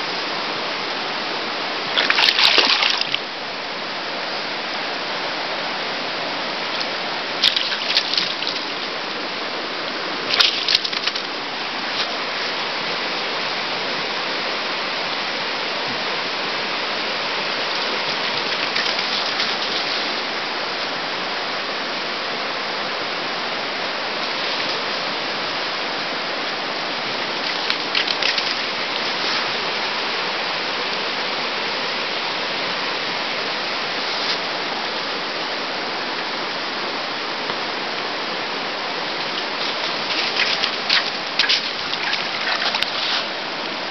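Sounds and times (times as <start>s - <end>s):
fast river rushing: 0.0s - 43.9s
water splashing: 1.7s - 3.4s, 6.6s - 12.6s, 16.9s - 20.5s, 24.1s - 30.3s, 38.7s - 43.9s.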